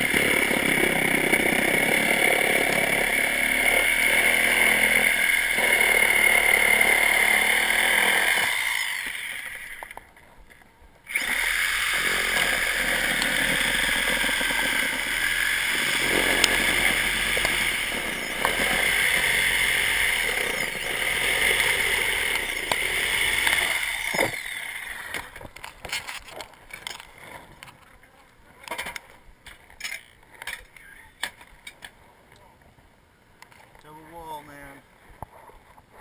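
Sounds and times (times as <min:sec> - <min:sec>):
reciprocating saw cutting wood: 0:00.0 - 0:10.0, 0:11.1 - 0:25.4.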